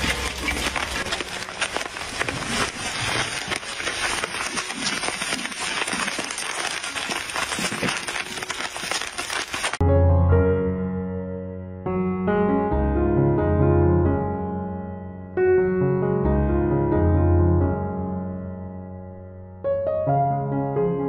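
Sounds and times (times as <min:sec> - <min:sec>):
popcorn crackling in a wok: 0:00.0 - 0:09.8
wooden spatula stirring: 0:00.0 - 0:09.8
piano music: 0:09.8 - 0:21.0.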